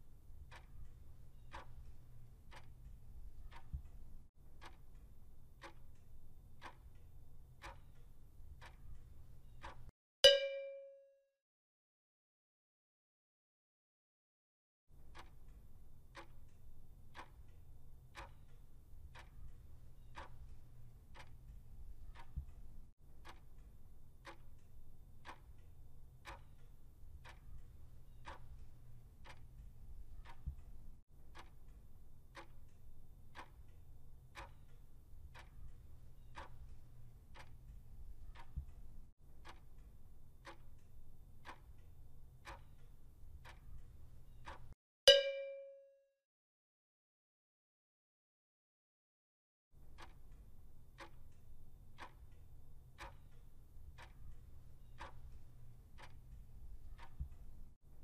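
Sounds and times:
clock ticking: 0.1s - 10.6s, 15.0s - 45.7s, 49.8s - 57.8s
short loud chime: 45.1s - 46.0s.

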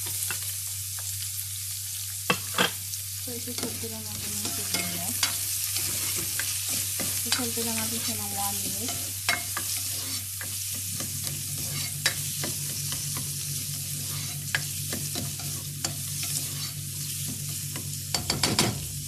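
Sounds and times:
onion sizzling in hot oil: 0.0s - 19.0s
spatula stirring in pot: 3.6s - 17.8s.

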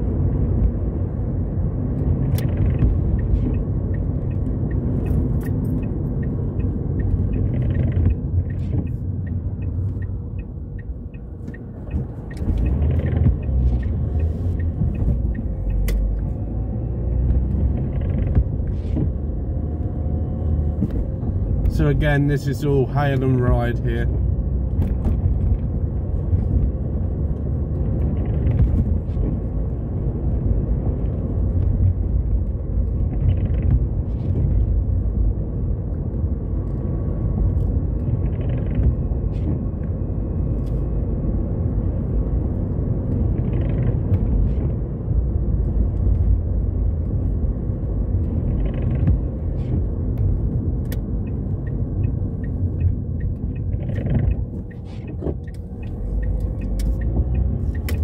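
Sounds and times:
car engine and tyres rumble: 0.0s - 58.0s
windscreen wipers swishing: 0.0s - 58.0s.

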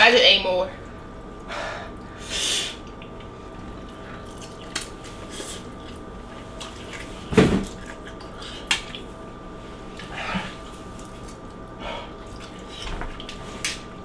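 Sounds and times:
faint steady hum: 0.0s - 14.0s
wet chewing sounds: 2.8s - 9.1s, 9.9s - 13.8s.

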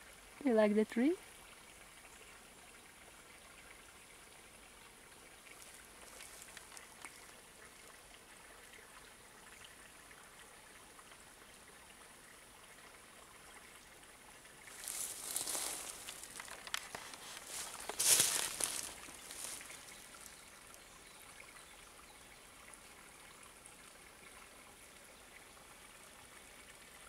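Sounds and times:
faint outdoor background hiss: 0.0s - 27.0s
light ticks: 6.0s - 7.4s, 16.0s - 17.9s
rustling scrape: 14.7s - 20.0s.

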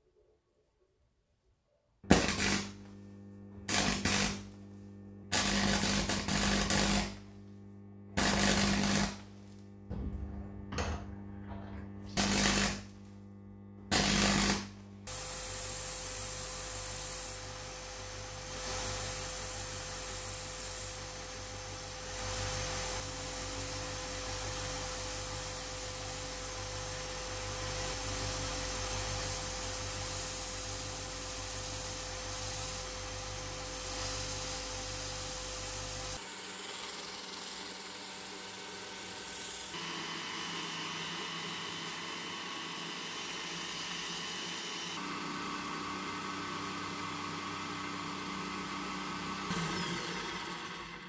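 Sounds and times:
belt grinder running: 2.1s - 2.9s, 3.7s - 4.6s, 5.3s - 7.2s, 8.2s - 9.6s, 11.6s - 12.9s, 13.9s - 51.0s
arc welding buzzing crackle: 2.1s - 9.9s, 12.0s - 39.9s.

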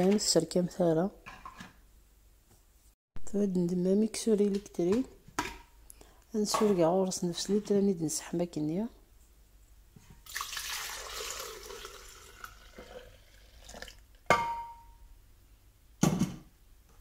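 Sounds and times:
milk pouring into a jug: 10.2s - 14.2s
sharp glass clink: 14.3s - 15.0s.

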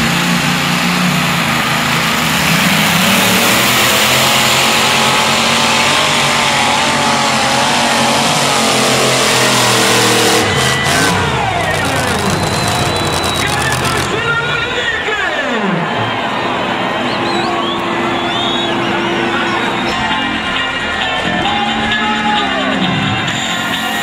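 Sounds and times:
tractor engine at high revs: 0.0s - 15.2s.

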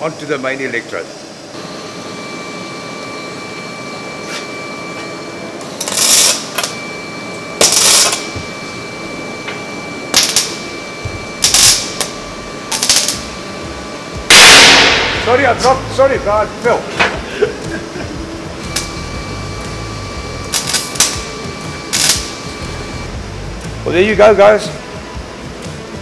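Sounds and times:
welding arc bursts: 5.8s - 6.8s, 7.6s - 8.3s, 10.1s - 16.8s, 18.6s - 23.1s.

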